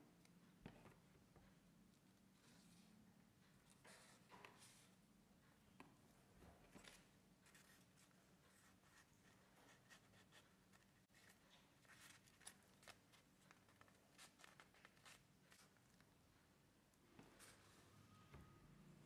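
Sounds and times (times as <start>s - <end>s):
paper crinkling while folded: 6.7s - 16.2s.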